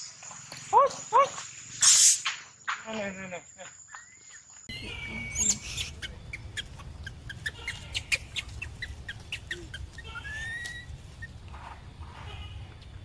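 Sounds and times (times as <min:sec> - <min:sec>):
young monkey squealing: 0:04.7 - 0:11.4.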